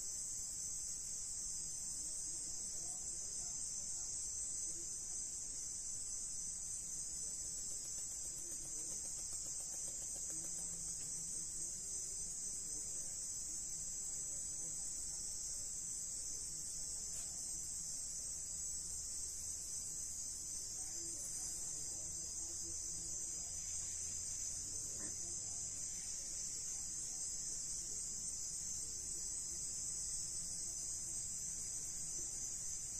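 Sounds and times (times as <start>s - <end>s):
chorus of night insects: 0.0s - 32.9s.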